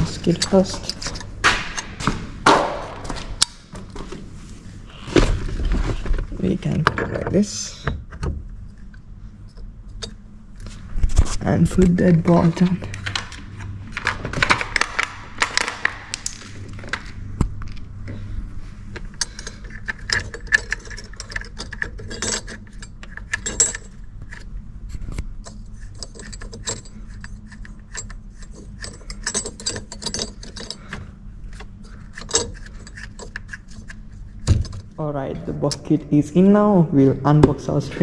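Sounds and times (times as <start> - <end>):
hand tools clicking on metal: 25.4 - 34.0.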